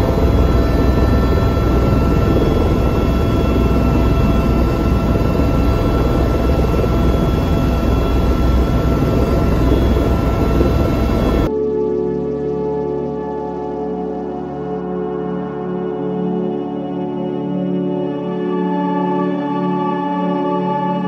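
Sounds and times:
helicopter engine and rotor: 0:00.0 - 0:11.5
high-pitched whine: 0:00.0 - 0:13.2.

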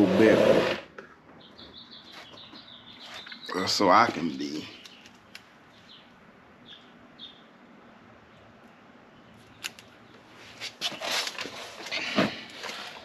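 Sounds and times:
faint bird chirps: 0:01.4 - 0:07.5
hands rustling vinyl decal: 0:09.5 - 0:13.0.

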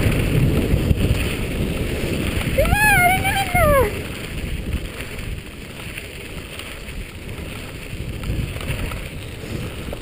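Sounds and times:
tyres rolling over gravel: 0:00.0 - 0:10.0
wind rushing over microphone: 0:00.0 - 0:10.0.

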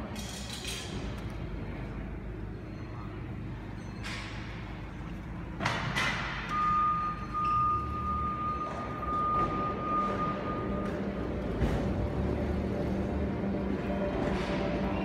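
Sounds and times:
hum of large hall: 0:00.0 - 0:15.0
forklift warning alarm tone: 0:06.5 - 0:11.4.

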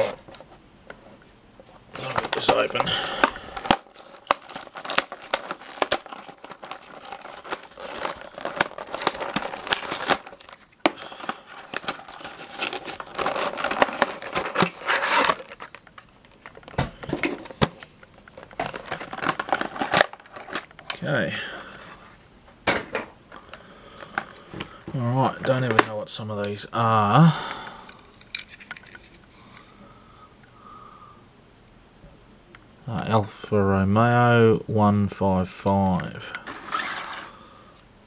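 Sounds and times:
cardboard tearing: 0:00.0 - 0:00.2, 0:02.0 - 0:15.8, 0:36.5 - 0:37.2
plastic crinkling: 0:01.9 - 0:21.1.

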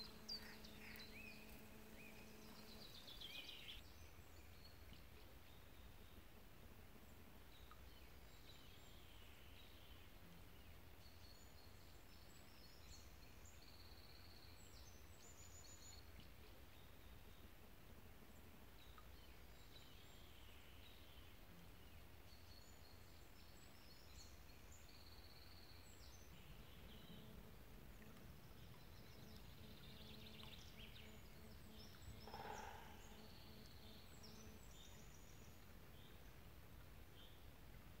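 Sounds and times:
low outdoor rumble: 0:00.0 - 0:03.8
small birds chirping and trilling: 0:00.0 - 0:03.8, 0:28.5 - 0:36.2
faint low hum: 0:00.0 - 0:38.0.

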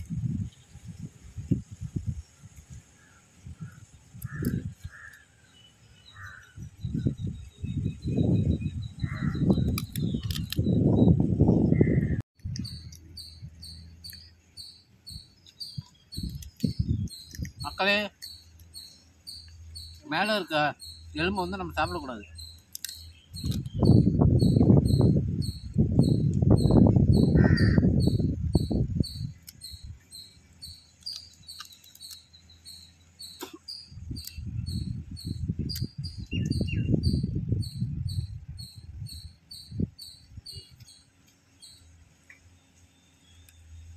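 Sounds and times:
insect chirping two-tone note: 0:12.6 - 0:41.9
chewing and crunching food: 0:31.0 - 0:32.3.

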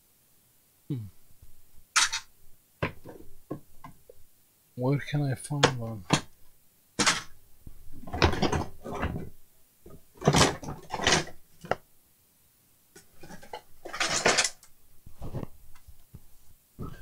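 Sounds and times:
circuit boards clattering: 0:02.0 - 0:03.7, 0:07.0 - 0:07.4, 0:08.0 - 0:11.8, 0:13.0 - 0:14.7.

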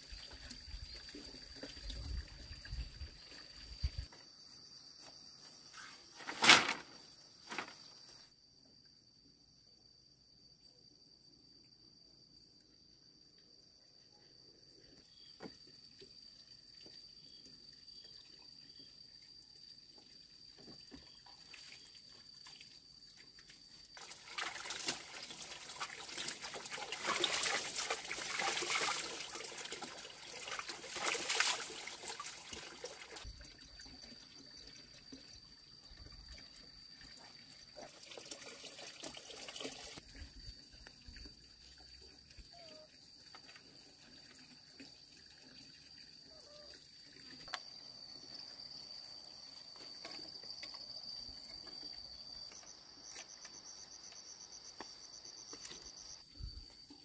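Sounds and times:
high-pitched insect trill: 0:00.0 - 0:06.2, 0:07.0 - 0:38.4, 0:39.3 - 0:57.0
water splashing in basins: 0:23.6 - 0:47.5.

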